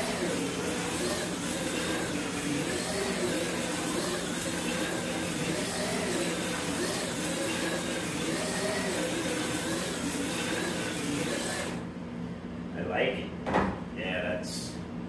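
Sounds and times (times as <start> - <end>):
slot car motor whine: 0.0 - 11.9.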